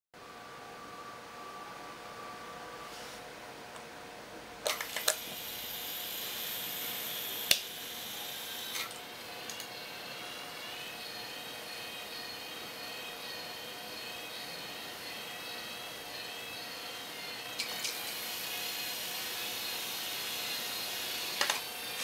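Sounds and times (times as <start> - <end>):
small electric motors whining: 4.8 - 22.0.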